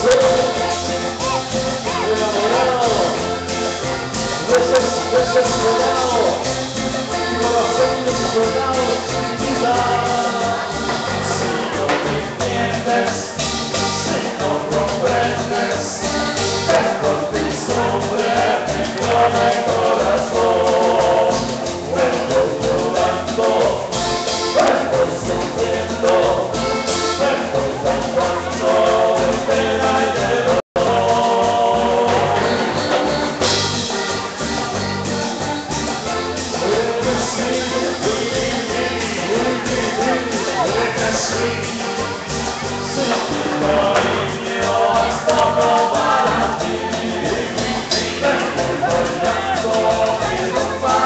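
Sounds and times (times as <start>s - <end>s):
hand percussion: 0.0s - 51.0s
latin dance band: 0.0s - 51.0s
person singing: 0.0s - 51.0s.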